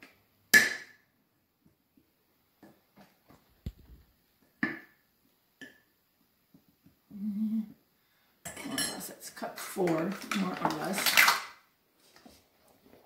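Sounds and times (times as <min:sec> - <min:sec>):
person humming: 0:07.1 - 0:07.8.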